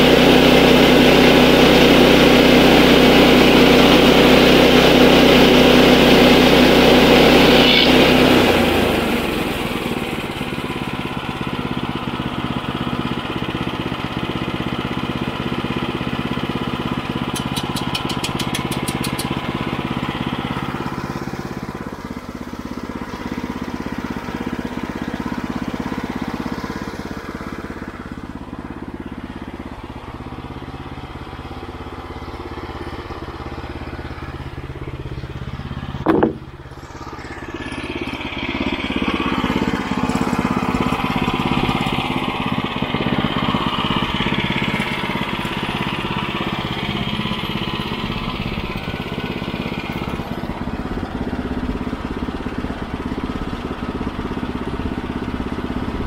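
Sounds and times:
small gasoline engine running: 0.0s - 56.0s
loud sharp knock: 36.0s - 36.5s.

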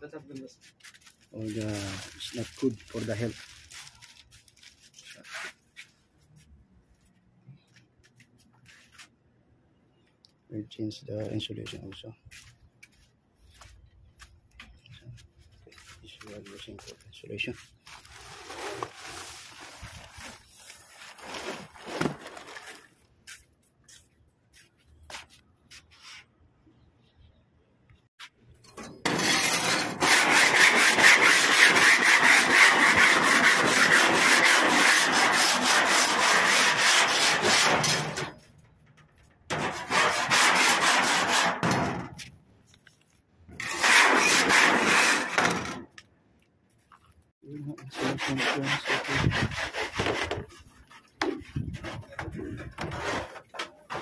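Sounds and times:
scraping on sheet metal: 28.7s - 38.4s, 39.5s - 42.1s, 43.6s - 45.8s, 47.9s - 50.7s, 51.6s - 54.0s.

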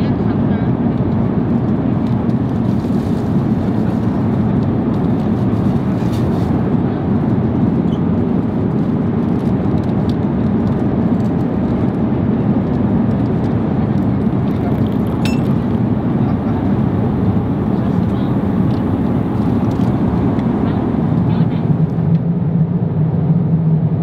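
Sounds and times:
airliner cabin drone: 0.0s - 24.0s
drink pouring into plastic cup: 13.8s - 16.0s.

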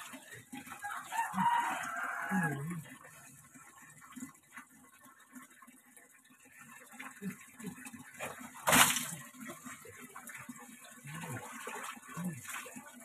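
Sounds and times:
water poured splash: 8.1s - 13.0s
water scooped in plastic basin: 8.2s - 9.7s.

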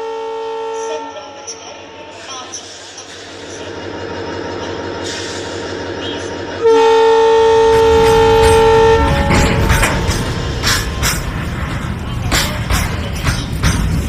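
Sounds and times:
diesel locomotive horn: 0.0s - 2.6s, 6.6s - 10.7s
model train rumbling past: 0.0s - 14.0s
wheels clicking over rail joints: 7.6s - 14.0s.

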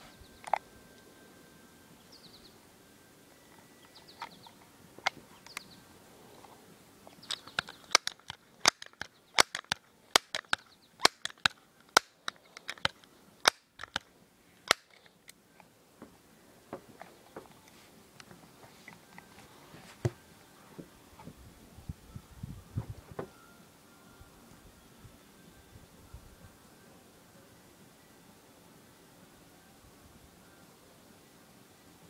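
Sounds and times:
faint bird chirps: 0.0s - 8.0s
air pistol clicking: 7.2s - 15.4s.

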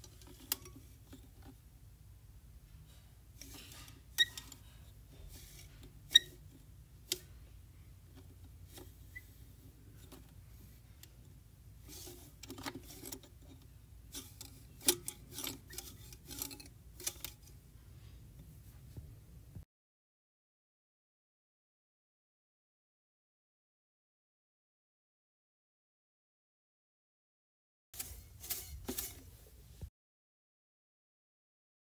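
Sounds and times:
low steady hum: 0.0s - 19.6s.

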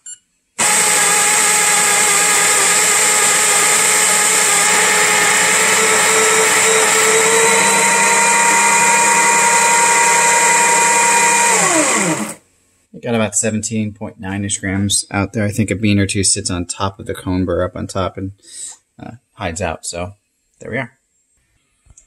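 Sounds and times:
coffee grinder whining: 0.6s - 12.4s.

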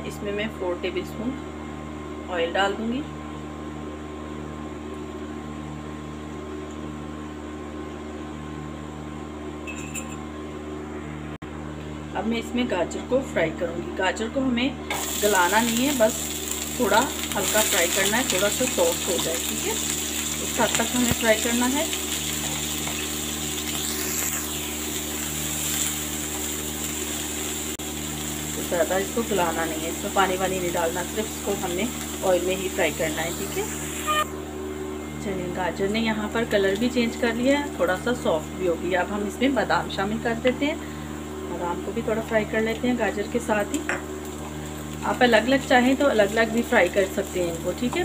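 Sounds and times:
appliance motor humming: 14.8s - 48.0s
vegetables sizzling in oil: 14.9s - 34.3s, 42.2s - 48.0s.

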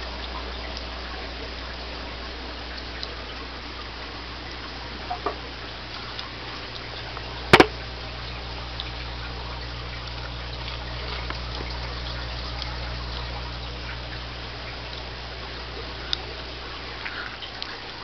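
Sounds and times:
filter humming: 0.0s - 18.0s
water trickling: 0.0s - 18.0s
sharp double knock: 7.5s - 7.8s.

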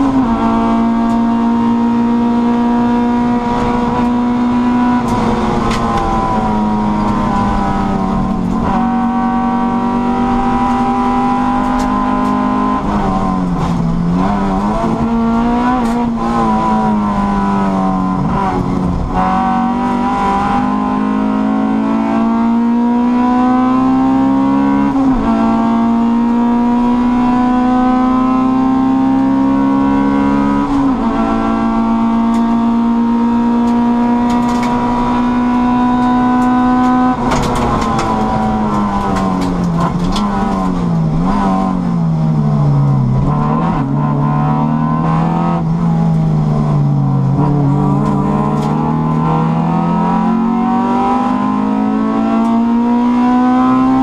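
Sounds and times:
car engine revving: 0.0s - 54.0s
engine crackling: 31.7s - 54.0s.

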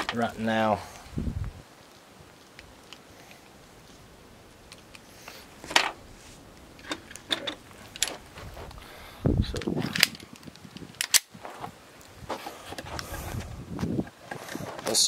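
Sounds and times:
handling thump and rustle: 5.6s - 8.8s, 9.6s - 15.0s
pistol being loaded clicking: 9.9s - 10.3s, 11.0s - 11.3s
pistol slide racking: 11.0s - 11.3s.

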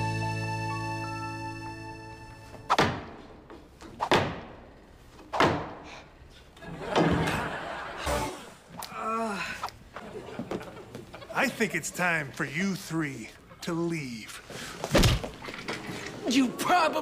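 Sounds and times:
music: 0.0s - 2.7s, 8.0s - 8.4s
sharp body thuds: 5.3s - 5.8s.

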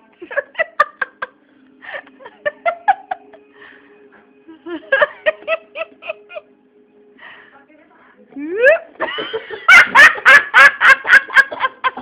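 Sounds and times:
woman laughing hard: 0.2s - 3.4s, 4.5s - 6.5s, 8.4s - 12.0s.

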